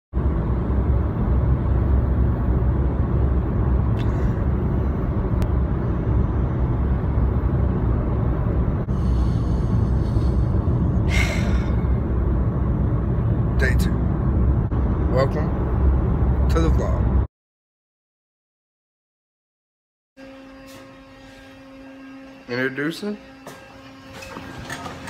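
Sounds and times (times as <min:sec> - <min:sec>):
car cabin road rumble: 0:00.2 - 0:17.3.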